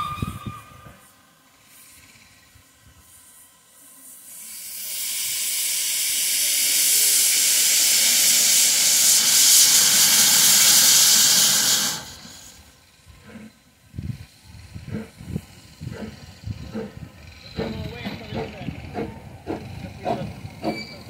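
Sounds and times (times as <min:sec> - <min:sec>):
steam hissing from locomotive: 0:00.0 - 0:21.0.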